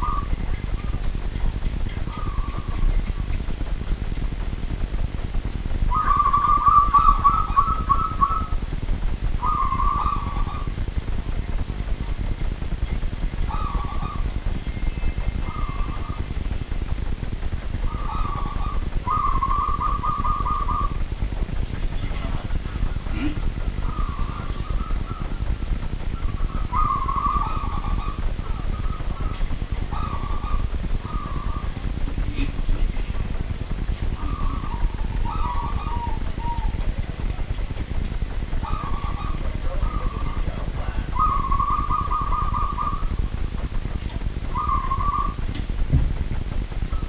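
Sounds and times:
dove cooing: 0.0s - 1.1s, 1.9s - 4.3s, 5.8s - 11.0s, 13.3s - 16.4s, 17.8s - 21.1s, 21.8s - 45.6s
steady low rumble: 0.0s - 47.0s.

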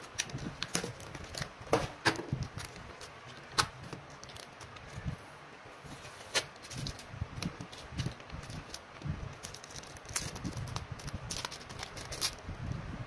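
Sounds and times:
plastic sleeves crinkling: 0.0s - 5.2s, 5.8s - 12.6s.

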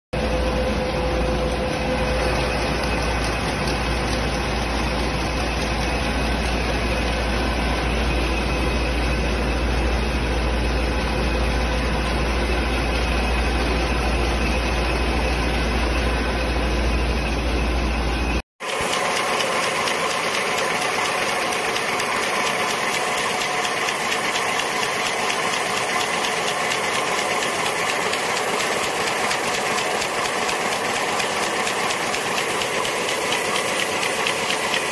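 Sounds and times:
die-cutting machine clatter: 1.8s - 7.9s, 18.6s - 34.9s
cone-forming machine clattering: 18.6s - 34.9s.

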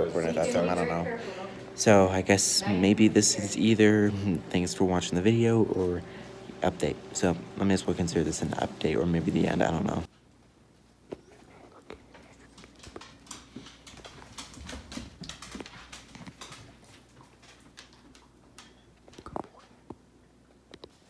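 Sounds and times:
dog claws clicking on hardwood floor: 12.0s - 19.8s.

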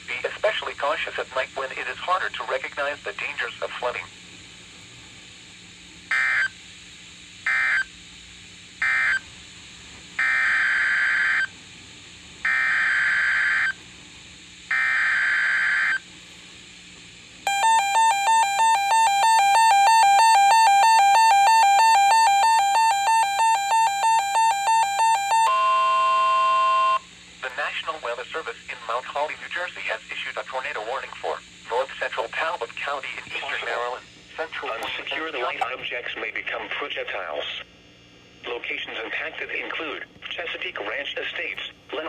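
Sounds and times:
radio data bursts: 0.0s - 4.2s, 17.5s - 37.6s
steady warning alarm tone: 6.1s - 6.6s, 7.4s - 7.9s, 8.8s - 9.3s, 10.2s - 11.5s, 12.4s - 13.8s, 14.7s - 16.1s, 17.5s - 27.1s.

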